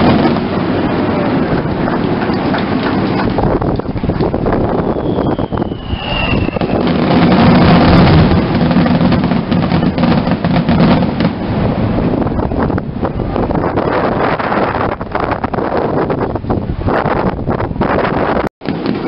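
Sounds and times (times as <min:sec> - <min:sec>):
fireworks crackling: 0:00.0 - 0:15.7, 0:18.6 - 0:19.0
thin whistle falling in pitch: 0:04.8 - 0:06.9.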